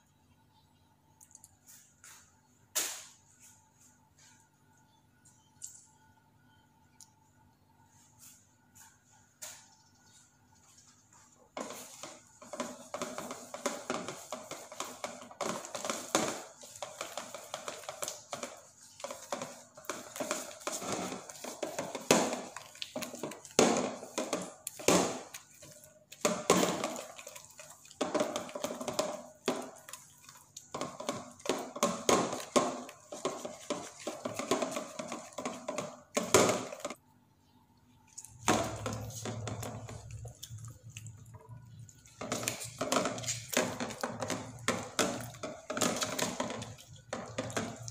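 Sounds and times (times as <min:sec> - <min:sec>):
fingers squishing through batter: 0:11.6 - 0:47.9.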